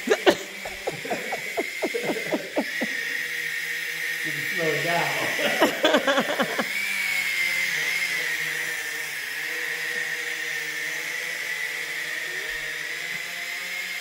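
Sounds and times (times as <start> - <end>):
toy drone propellers whining: 0.0 - 14.0.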